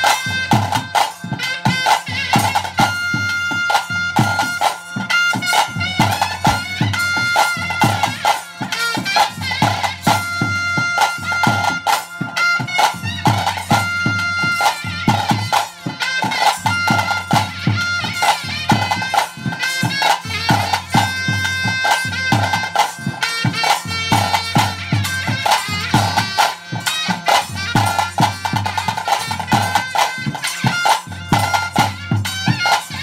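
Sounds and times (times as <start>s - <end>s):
shrill reed wind instrument: 0.0s - 33.0s.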